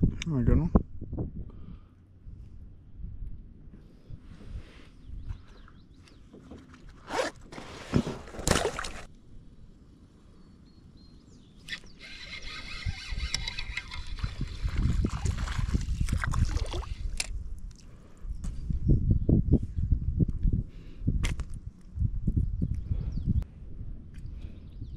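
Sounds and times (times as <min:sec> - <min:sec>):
fishing reel whirring: 0:11.7 - 0:15.3.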